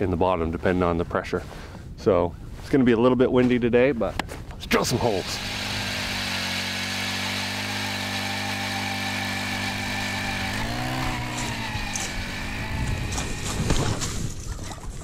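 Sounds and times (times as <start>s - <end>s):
ice auger engine drilling: 4.9s - 14.3s.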